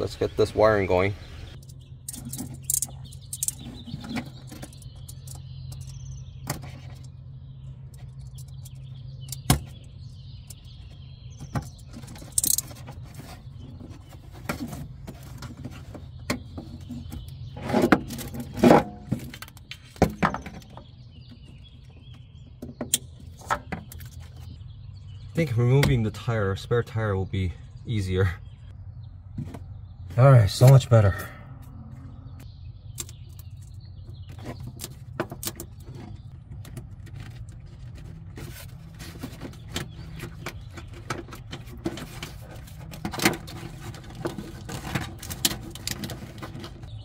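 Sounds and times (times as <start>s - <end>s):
clicks knocks and rustles of handling: 33.0s - 46.9s.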